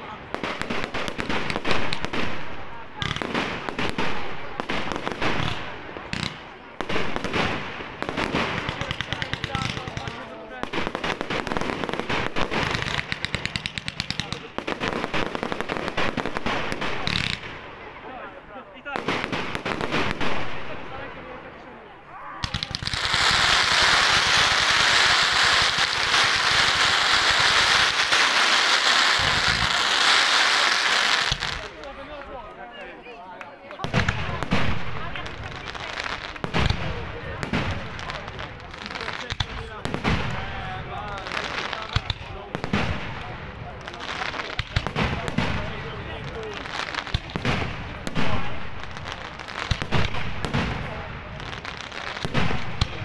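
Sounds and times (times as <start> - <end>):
fireworks bursting with loud bangs: 0.0 - 32.2, 33.6 - 53.0
firework pops and crackles: 0.3 - 17.9, 18.9 - 21.4, 22.4 - 53.0
fireworks hissing: 22.4 - 31.8.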